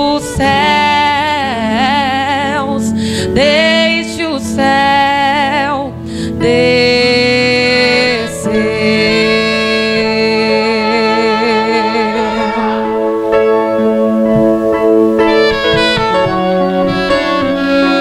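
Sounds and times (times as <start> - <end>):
woman singing with vibrato: 0.0 - 13.8
instrumental accompaniment: 0.0 - 18.0.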